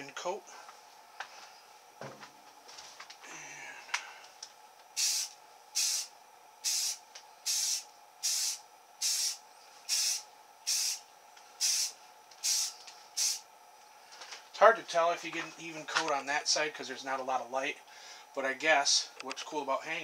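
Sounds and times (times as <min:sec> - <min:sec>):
spray paint can hissing: 0:05.0 - 0:11.0, 0:11.6 - 0:13.4.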